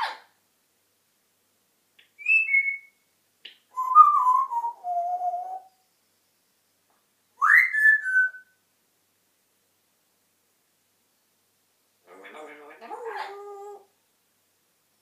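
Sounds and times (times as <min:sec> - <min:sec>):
parrot whistling: 0:02.2 - 0:03.0, 0:03.8 - 0:05.7, 0:07.4 - 0:08.5.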